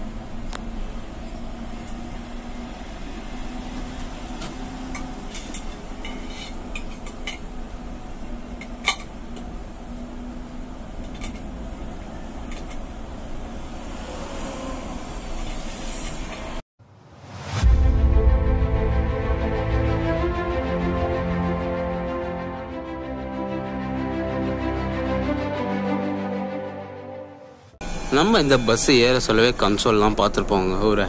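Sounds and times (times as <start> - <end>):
bus road rumble: 0.0 - 17.6
low hum: 0.0 - 29.7.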